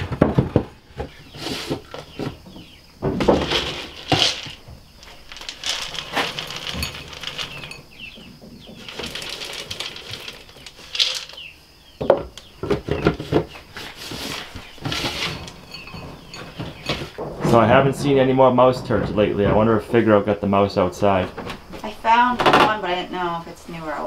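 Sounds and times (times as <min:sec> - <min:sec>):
clatter and rattles: 0:00.0 - 0:11.5, 0:12.1 - 0:20.4
plastic lid turned and knocked: 0:00.0 - 0:18.0.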